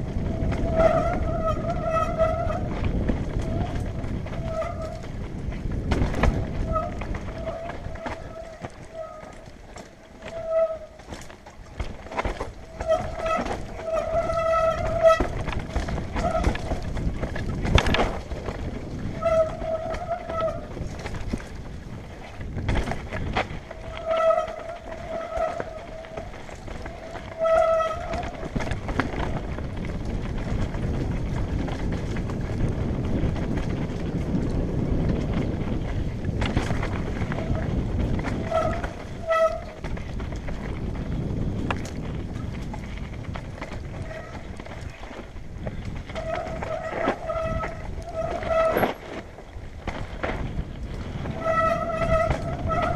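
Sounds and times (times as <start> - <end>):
bike rattling over stones: 0.0 - 52.9
disc brake squeal: 6.6 - 9.5, 10.2 - 11.0, 12.7 - 15.3, 19.1 - 20.7, 23.8 - 28.3, 46.2 - 49.0, 51.3 - 52.9.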